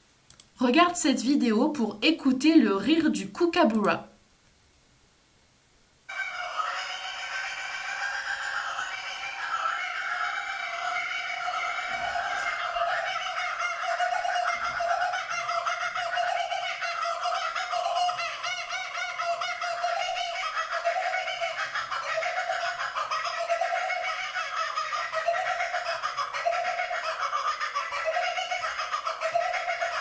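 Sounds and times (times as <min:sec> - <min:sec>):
kookaburras laughing: 0:06.1 - 0:30.0.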